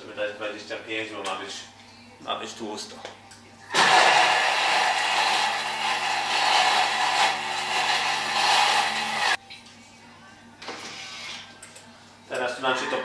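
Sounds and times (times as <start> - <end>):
food processor motor whirring: 3.8 - 9.4.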